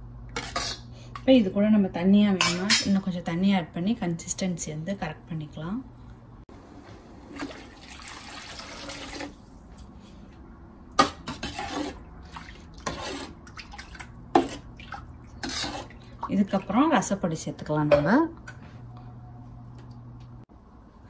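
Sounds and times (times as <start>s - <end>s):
water splashing into a pan: 7.3s - 9.5s
ladle stirring and clinking on pan: 11.0s - 12.0s, 15.3s - 16.0s.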